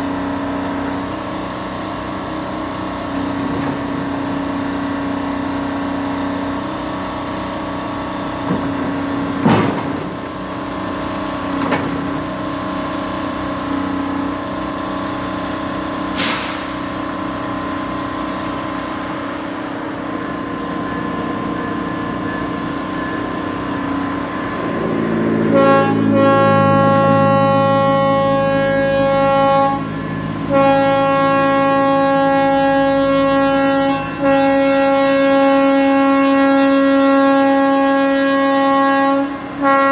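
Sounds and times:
steady engine drone: 0:00.0 - 0:39.9
locomotive air horn blasts: 0:15.5 - 0:39.9.

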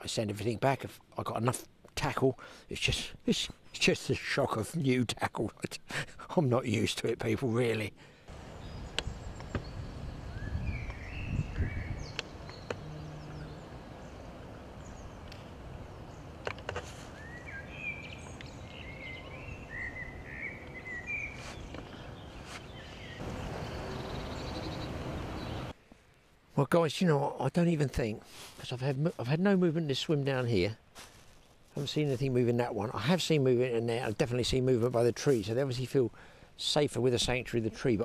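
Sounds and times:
low wind noise: 0:08.2 - 0:25.8
small birds twittering: 0:08.3 - 0:25.8.

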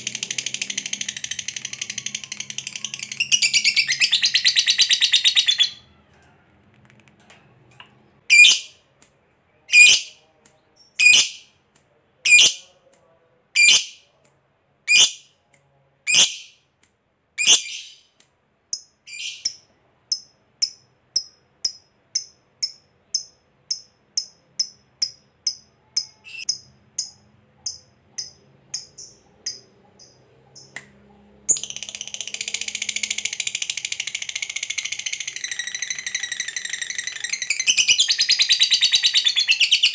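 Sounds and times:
lovebird chattering trill: 0:19.1 - 0:30.7.

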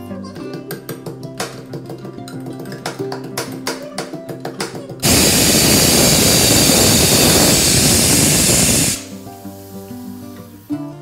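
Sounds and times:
guitar music: 0:00.0 - 0:11.0
pressure cooker steam hissing: 0:05.0 - 0:10.9.

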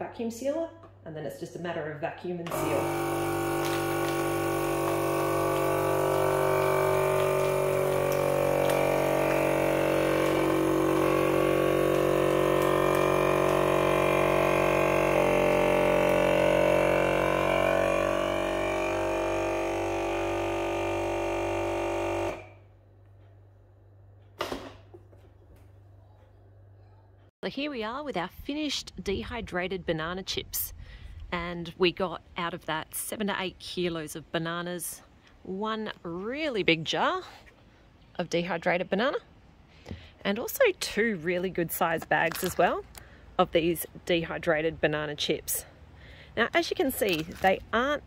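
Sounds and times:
vacuum sealer pump droning: 0:02.5 - 0:22.7.

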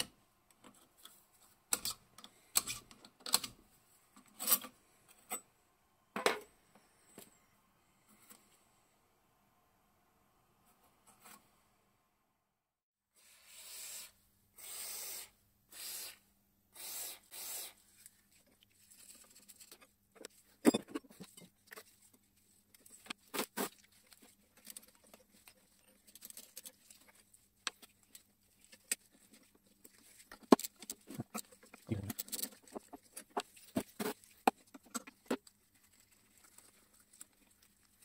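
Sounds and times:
faint steady hum: 0:00.0 - 0:12.5
short hissing bursts: 0:13.2 - 0:17.8.

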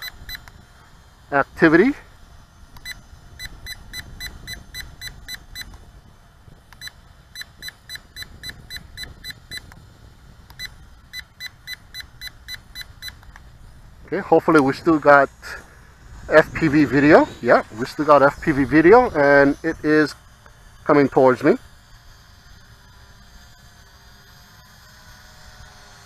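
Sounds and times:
remote control short high beeps: 0:00.0 - 0:00.5, 0:02.8 - 0:05.8, 0:06.8 - 0:09.8, 0:10.5 - 0:13.2.

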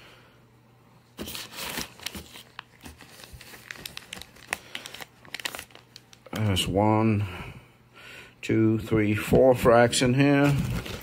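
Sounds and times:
plastic bags crinkling: 0:01.2 - 0:06.6, 0:10.3 - 0:11.0.

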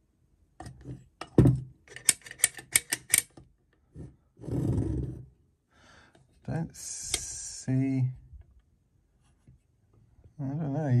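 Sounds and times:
sharp metallic clicks and taps: 0:01.9 - 0:03.4.

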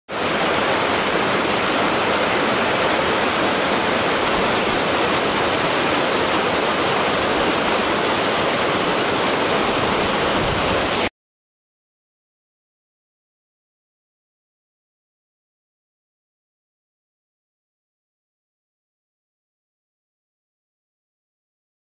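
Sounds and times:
water rushing down rocks: 0:00.1 - 0:11.1.

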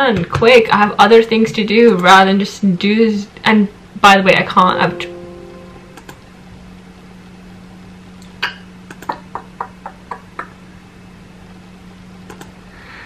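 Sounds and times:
low steady hum: 0:00.0 - 0:13.0
light clicks: 0:12.3 - 0:12.6.

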